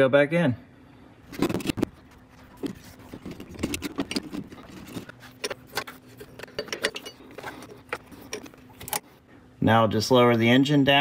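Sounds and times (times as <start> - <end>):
faint steady hum: 0.0 - 11.0
metallic clinks and knocks: 2.6 - 9.0.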